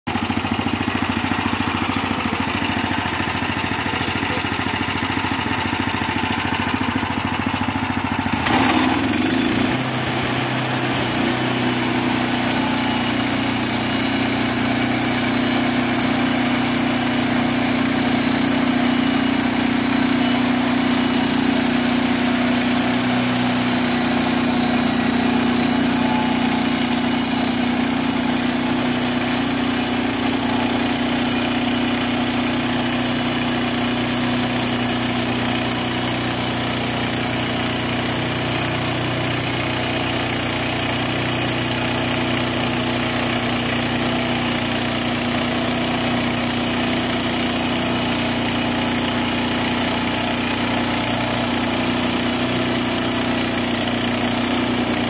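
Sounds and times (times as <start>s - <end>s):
small engine running: 0.1s - 55.0s
band blade sawing through log: 8.5s - 31.8s.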